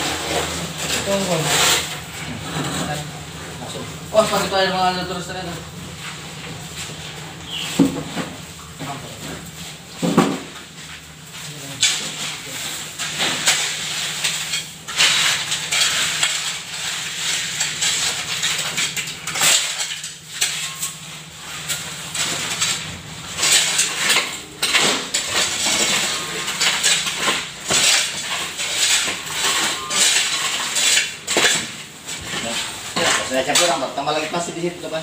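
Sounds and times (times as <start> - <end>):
shovels scraping wet concrete: 0.0 - 35.0
metallic scrapes and clinks: 11.8 - 33.9.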